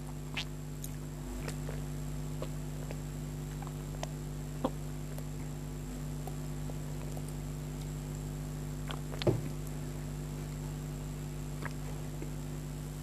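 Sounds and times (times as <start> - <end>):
mouth clicks: 0.0 - 5.4
sips and swallows: 0.0 - 5.6, 11.6 - 12.4
electrical hum: 0.0 - 13.0.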